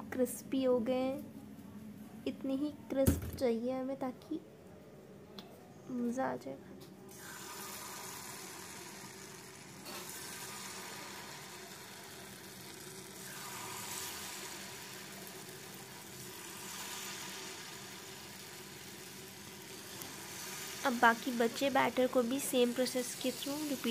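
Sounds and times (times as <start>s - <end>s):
battered potatoes sizzling in oil: 7.1s - 23.9s.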